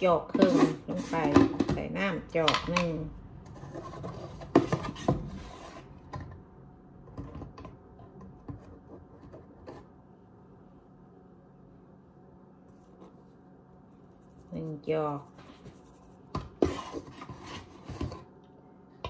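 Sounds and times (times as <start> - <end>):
plastic cup scraping in flour tub: 0.3 - 1.5, 16.5 - 18.3.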